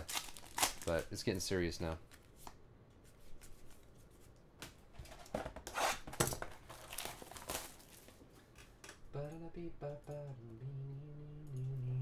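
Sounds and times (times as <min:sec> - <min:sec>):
plastic shrink wrap crinkling: 0:00.0 - 0:01.2, 0:06.4 - 0:08.2.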